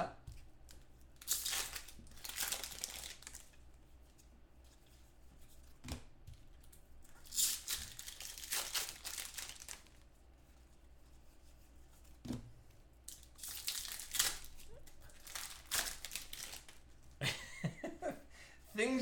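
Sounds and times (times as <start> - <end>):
foil wrappers tearing and crinkling: 1.2 - 3.5, 7.2 - 10.0, 13.1 - 16.8.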